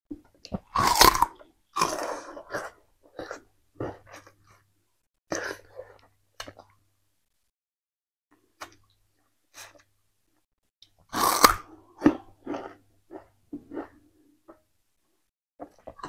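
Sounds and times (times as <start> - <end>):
chewing sugarcane crunches: 0.5 - 3.4.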